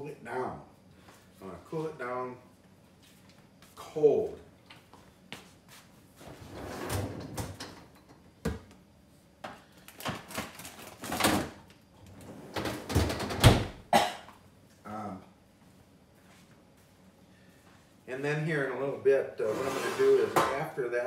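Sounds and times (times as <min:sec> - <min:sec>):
freezer door opening and shutting: 0:06.3 - 0:08.6, 0:10.0 - 0:13.8
scraping and rustling: 0:19.4 - 0:20.6.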